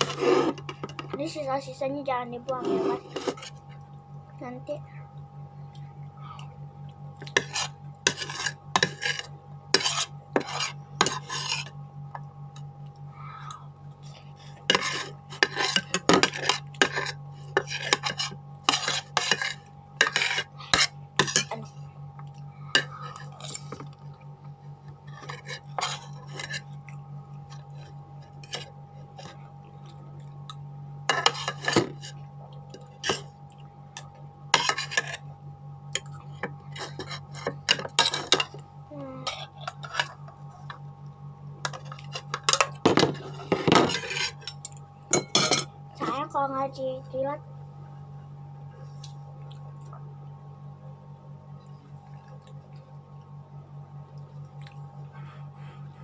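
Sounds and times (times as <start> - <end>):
low hum: 0.0 - 56.0
cutlery scraping a plate: 2.6 - 3.5, 7.2 - 11.8, 14.6 - 21.5, 25.0 - 26.7, 31.1 - 32.2, 34.5 - 35.2, 36.0 - 38.6, 41.6 - 45.7.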